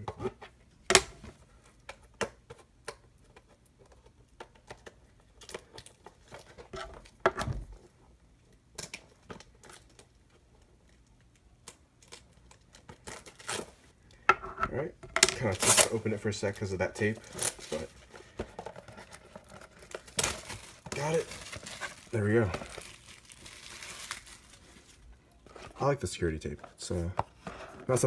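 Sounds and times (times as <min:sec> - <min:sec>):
tape tearing on cardboard box: 0:13.0 - 0:13.8, 0:15.4 - 0:16.0, 0:17.2 - 0:17.9.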